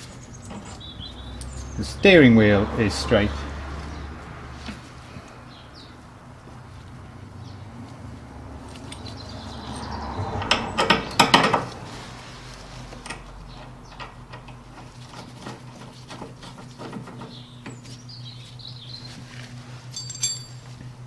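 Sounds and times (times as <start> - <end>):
metal parts clinking and rattling: 8.6 - 11.7, 19.9 - 20.7.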